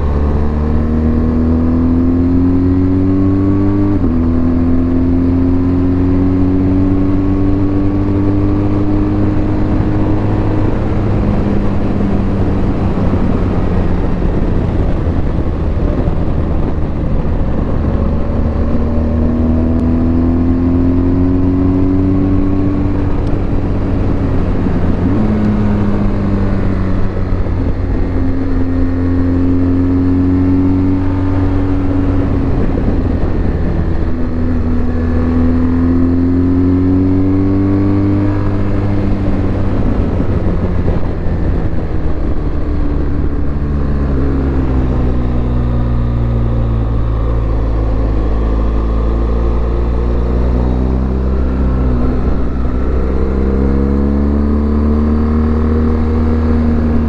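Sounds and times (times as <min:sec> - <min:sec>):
motorcycle engine revving: 0:00.0 - 0:57.0
steady rushing noise: 0:05.4 - 0:57.0.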